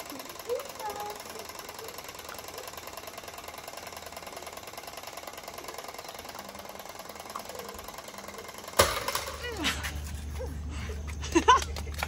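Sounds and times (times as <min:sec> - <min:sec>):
clockwork timer ticking rapidly: 0:00.0 - 0:09.4.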